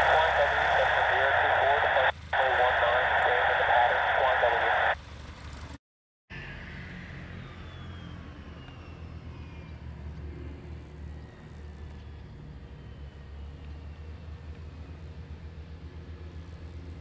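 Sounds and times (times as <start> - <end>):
airplane engine drone: 0.0 - 17.0.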